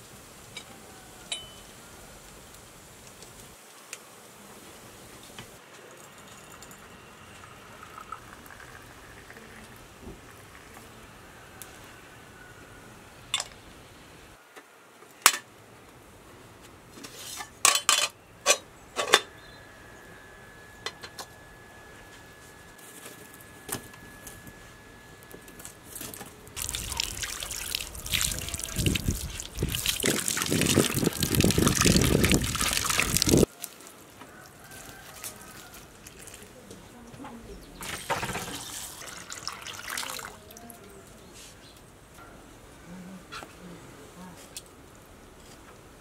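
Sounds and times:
water splashing in bowl: 25.9 - 33.5, 35.2 - 36.6, 37.8 - 40.7.

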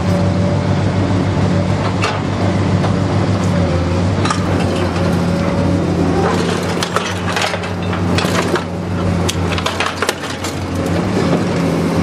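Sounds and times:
machine low drone: 0.0 - 12.0
metal crunching and snapping: 6.0 - 11.0.

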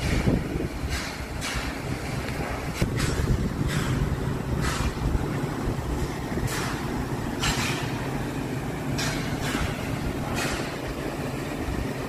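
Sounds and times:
low rumble of machinery: 0.0 - 12.0.

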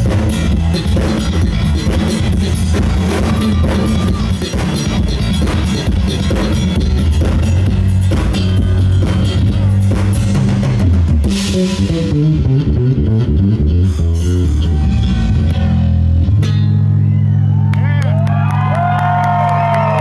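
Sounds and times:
live rock band playing: 0.0 - 17.7
electric bass guitar: 0.0 - 20.0.

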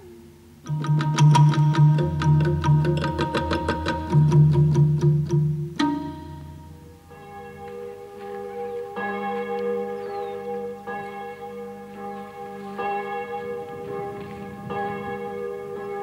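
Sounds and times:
bell tolling: 12.1 - 16.0.

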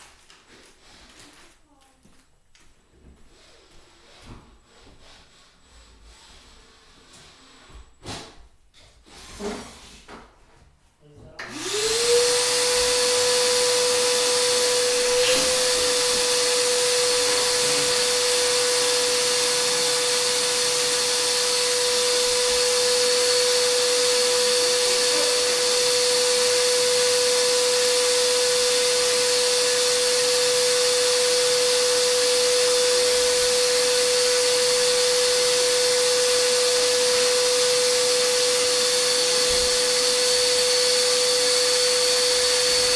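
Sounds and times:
vacuum blower motor whine: 11.4 - 42.9.

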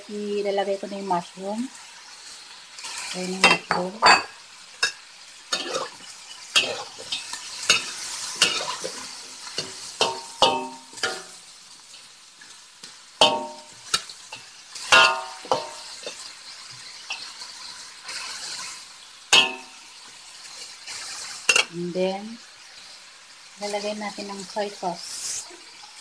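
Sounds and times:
frying sizzle: 0.0 - 26.0
metal spatula scraping a wok: 2.8 - 11.5, 13.2 - 21.7.

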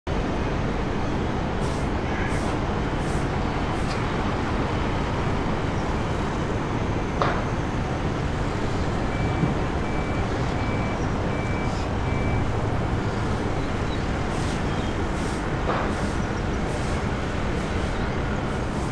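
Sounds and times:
traffic noise: 0.1 - 18.9.

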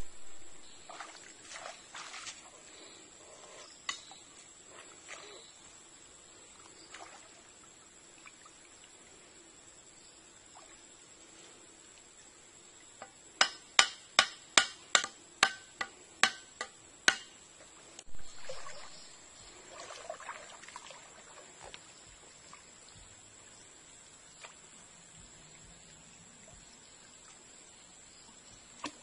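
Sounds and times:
water splashing from wading: 0.0 - 2.6, 6.8 - 8.8, 17.8 - 24.8.

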